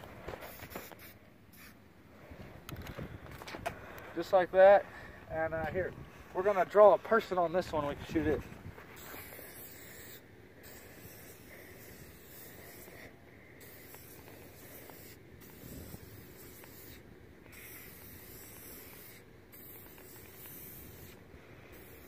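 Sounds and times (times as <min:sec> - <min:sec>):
spray paint can hissing: 0:00.4 - 0:01.8, 0:08.9 - 0:22.0.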